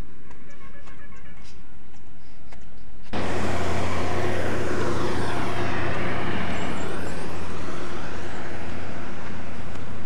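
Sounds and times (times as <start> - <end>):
engine hum: 3.1 - 10.0
loud rushing sound: 3.2 - 9.6.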